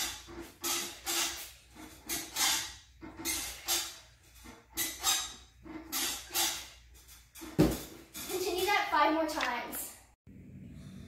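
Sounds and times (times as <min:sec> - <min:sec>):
loud thud of landing: 0:07.5 - 0:08.0.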